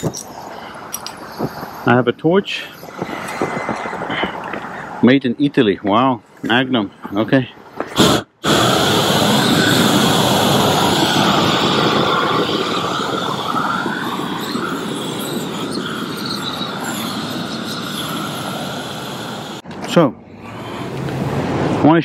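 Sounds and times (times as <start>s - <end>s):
propane torch flame rushing: 7.8s - 19.6s.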